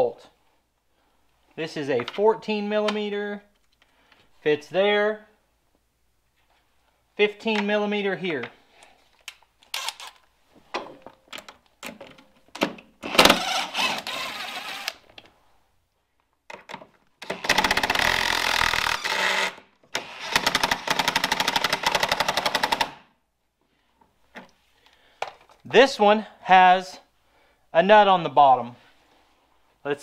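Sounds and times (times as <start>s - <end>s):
impact driver rattling: 13.0s - 14.9s, 17.2s - 23.0s.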